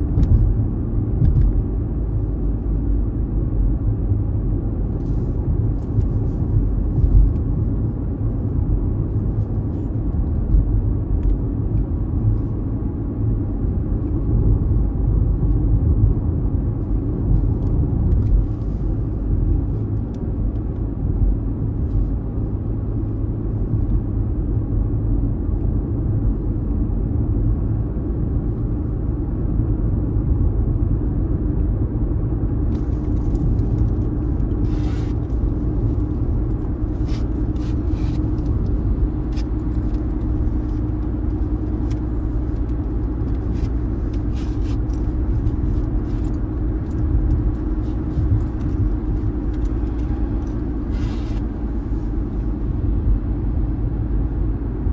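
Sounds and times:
car road and engine rumble: 0:00.0 - 0:54.9
light clicks and rattles: 0:32.7 - 0:50.9.

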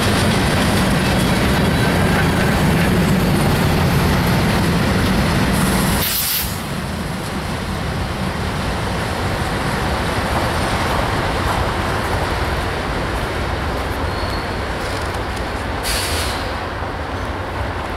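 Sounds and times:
train wheels rumbling on track: 0:00.0 - 0:17.9
brief hiss: 0:06.0 - 0:06.6, 0:15.8 - 0:16.6.

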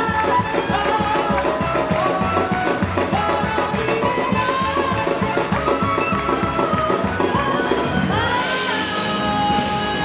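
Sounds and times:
sliding melody line: 0:00.0 - 0:10.0.

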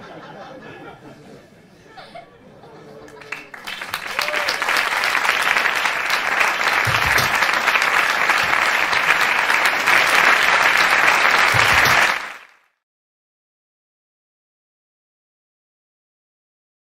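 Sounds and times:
audience applauding: 0:03.2 - 0:12.6.

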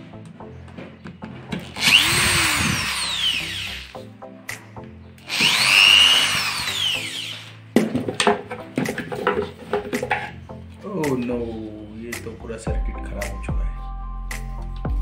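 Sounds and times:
cordless drill motor: 0:01.6 - 0:04.0, 0:05.2 - 0:07.6.

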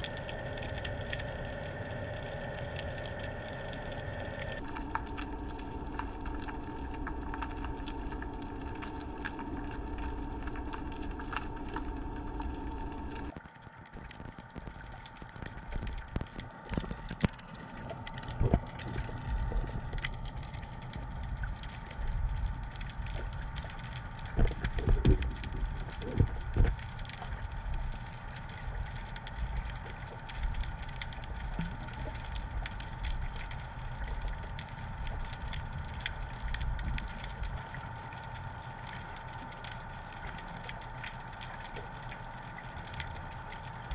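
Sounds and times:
low rumble with crackling: 0:00.0 - 0:43.9
steady underwater hum: 0:00.0 - 0:43.9.

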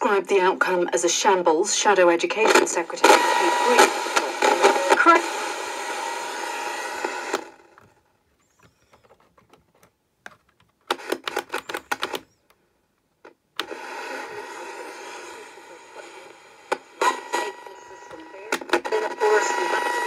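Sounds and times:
radio speaker hiss and static: 0:02.4 - 0:07.8, 0:13.6 - 0:20.0
plastic clicks and rattles: 0:07.8 - 0:12.3.

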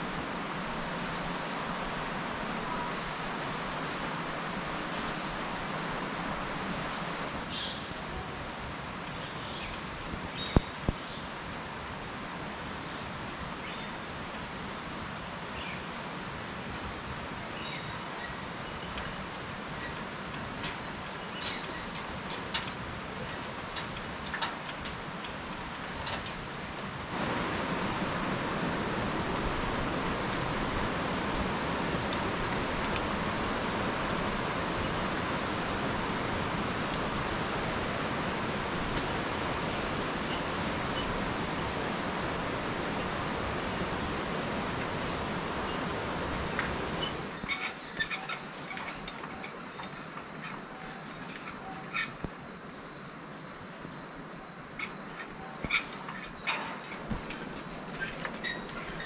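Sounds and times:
steady background hiss: 0:00.0 - 0:59.0
faint bird chirps: 0:45.1 - 0:59.0.

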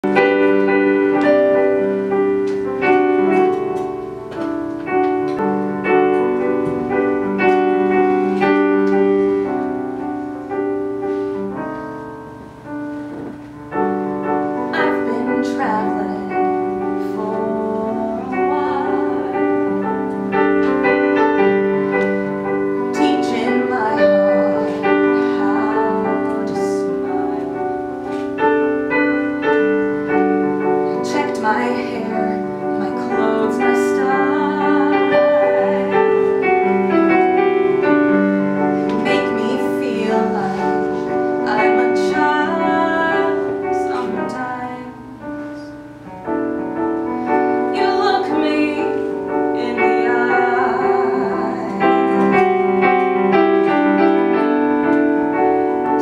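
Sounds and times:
piano chords: 0:00.0 - 0:56.0
woman singing: 0:14.6 - 0:20.7, 0:22.9 - 0:27.6, 0:30.6 - 0:37.0, 0:38.8 - 0:45.8, 0:47.6 - 0:52.8.

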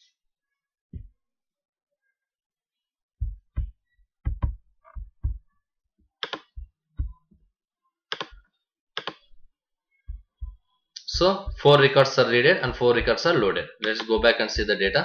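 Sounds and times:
dull low thumps: 0:03.2 - 0:05.5, 0:06.5 - 0:07.4, 0:10.1 - 0:13.4, 0:14.2 - 0:15.0
sharp mouse clicks: 0:06.2 - 0:06.6, 0:08.1 - 0:08.4, 0:09.0 - 0:09.2.

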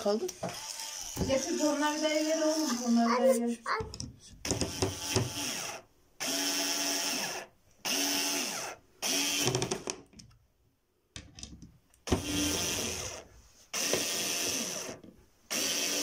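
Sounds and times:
cordless screwdriver motor: 0:00.5 - 0:02.9, 0:04.5 - 0:09.5, 0:12.1 - 0:13.2, 0:13.8 - 0:16.0.

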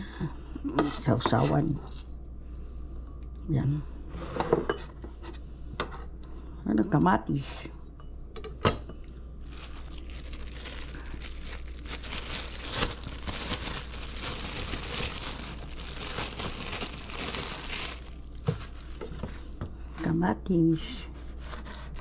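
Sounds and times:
plastic packaging crinkling: 0:09.4 - 0:19.2.

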